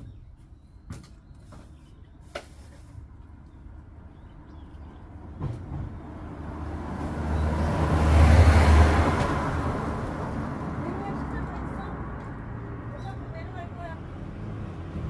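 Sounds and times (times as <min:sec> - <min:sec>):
vehicle passing by: 0:04.0 - 0:15.0.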